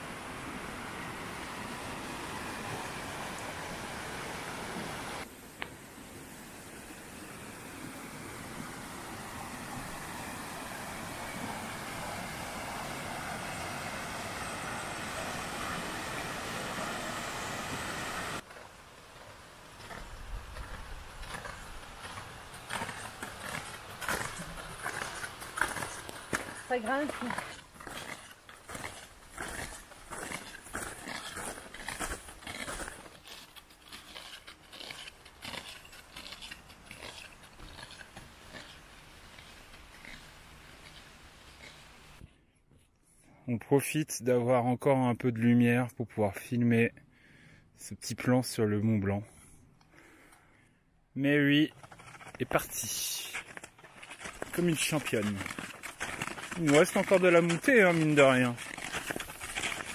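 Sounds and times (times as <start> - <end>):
stream rushing over rocks: 0.0 - 5.3, 6.8 - 19.4
snowshoe footsteps crunching snow: 19.2 - 42.2, 51.7 - 59.9.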